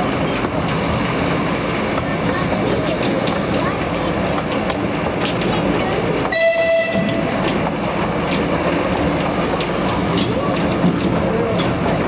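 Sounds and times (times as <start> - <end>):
train wheels rumbling: 0.0 - 12.0
clicks over rail joints: 1.9 - 12.0
train horn blast: 6.3 - 7.2.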